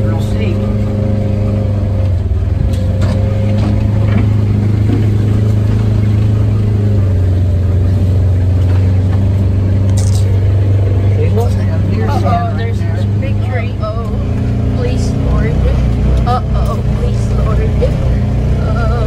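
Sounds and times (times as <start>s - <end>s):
vehicle engine humming: 0.0s - 19.0s.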